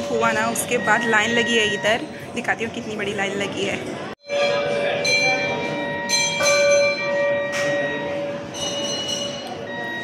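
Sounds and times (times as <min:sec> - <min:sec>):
temple bells ringing: 0:04.2 - 0:10.0.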